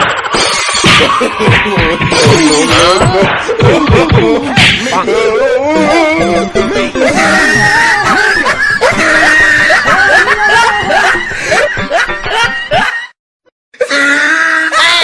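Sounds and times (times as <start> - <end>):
background music: 0.8 - 13.1
snickering laughter: 7.0 - 13.1.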